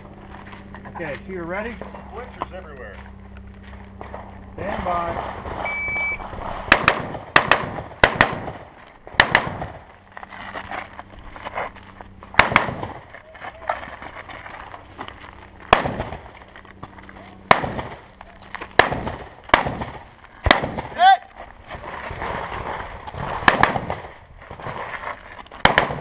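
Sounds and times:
shot timer beep: 5.7 - 6.2
rifle gunshots: 6.7 - 9.9, 12.3 - 13.0, 15.7 - 16.3, 17.4 - 18.0, 18.7 - 21.0, 23.4 - 24.2, 25.6 - 26.0.

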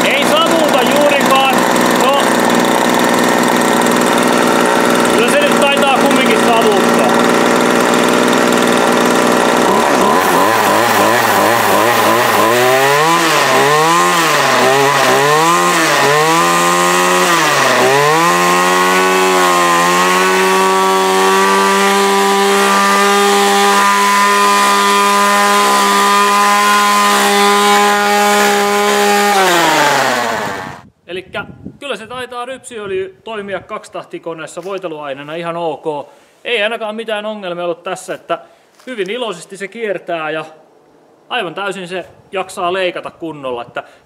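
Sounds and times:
string trimmer engine revving: 0.0 - 30.8.

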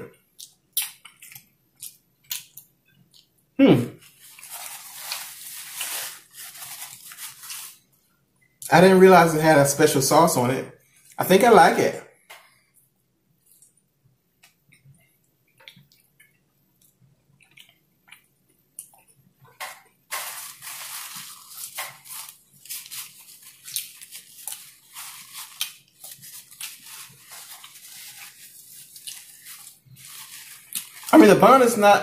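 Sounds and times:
person chewing food: 0.4 - 3.4, 14.4 - 31.1.

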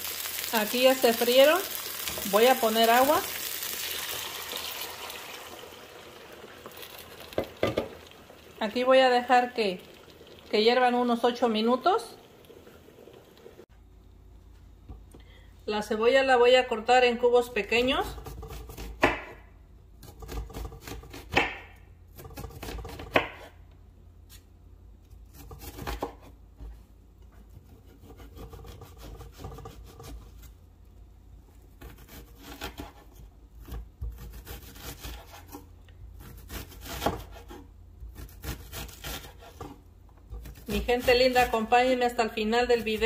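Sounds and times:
knife slicing and scraping: 31.8 - 41.5.

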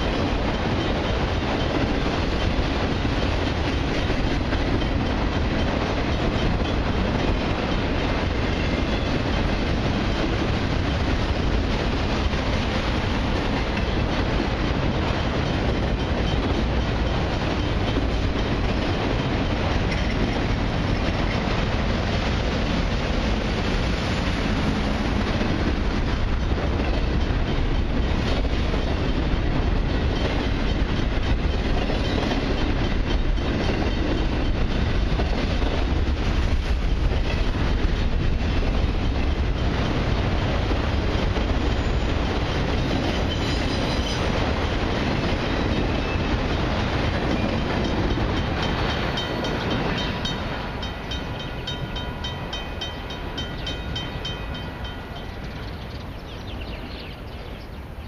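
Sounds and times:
wheels clacking over rail joints: 0.0 - 57.1
freight train rumble: 0.0 - 58.0
high ringing tones: 47.4 - 56.3.

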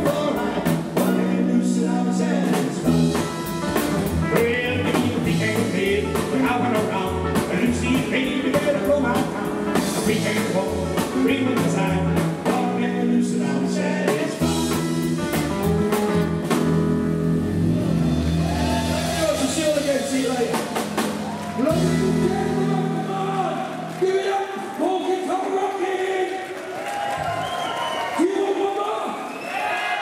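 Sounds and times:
electric lead guitar: 0.0 - 24.0
rock and roll band playing: 0.0 - 25.6.

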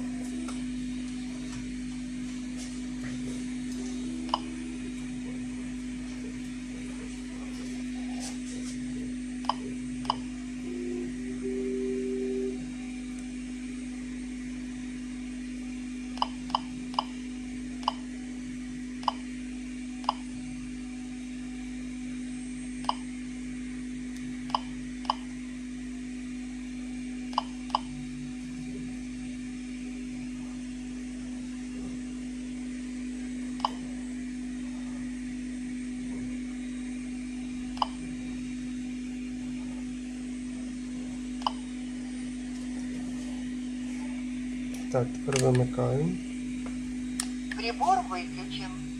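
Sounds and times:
steady low hum: 0.0 - 48.9
geiger counter beep-clicks: 9.4 - 12.6, 16.2 - 17.2, 17.8 - 18.1, 19.0 - 19.2, 41.4 - 41.6.

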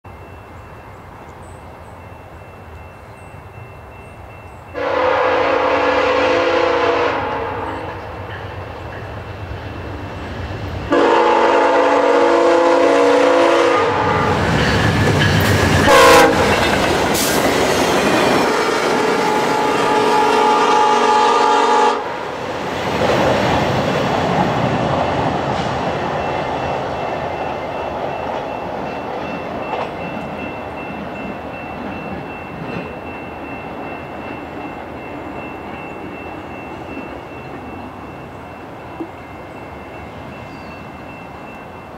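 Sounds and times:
train coaches rushing and clattering: 0.0 - 41.9
train horn blasts: 4.7 - 8.2, 10.9 - 14.5, 15.8 - 16.6, 18.4 - 22.2.

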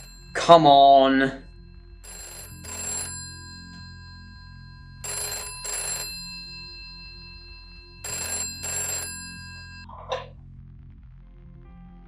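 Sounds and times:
low steady drone: 0.0 - 5.1
telephone bell ringing: 0.0 - 9.9.

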